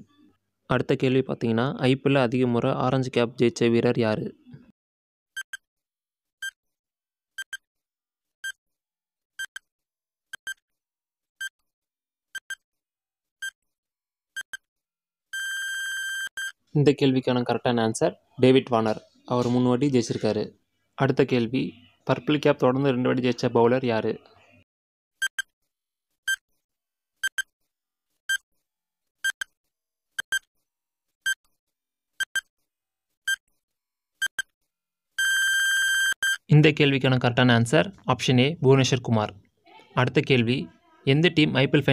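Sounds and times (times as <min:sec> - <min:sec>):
electronic timer beeps: 0:05.4 - 0:05.6, 0:07.4 - 0:07.7, 0:10.3 - 0:10.6, 0:12.4 - 0:12.6, 0:14.4 - 0:14.6, 0:15.3 - 0:16.6, 0:25.2 - 0:25.5, 0:27.2 - 0:27.5, 0:30.2 - 0:30.5, 0:32.2 - 0:32.5, 0:34.2 - 0:34.5, 0:35.2 - 0:36.4.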